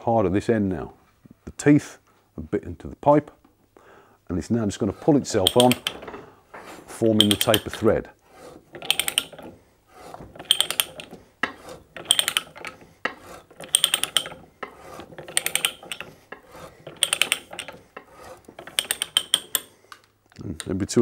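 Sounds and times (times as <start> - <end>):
die scraping metal pipe: 4.4 - 19.8
ratchet clicking: 5.4 - 6.0, 7.2 - 7.8, 8.8 - 9.6, 10.4 - 19.7.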